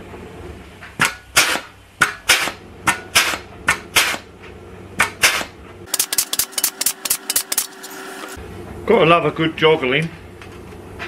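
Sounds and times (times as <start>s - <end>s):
pneumatic tool clacking: 1.0s - 4.3s, 5.0s - 8.4s.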